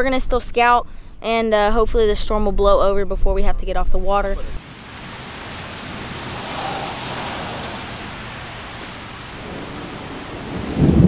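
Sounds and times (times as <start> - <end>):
rain on wet pavement: 4.6 - 11.0.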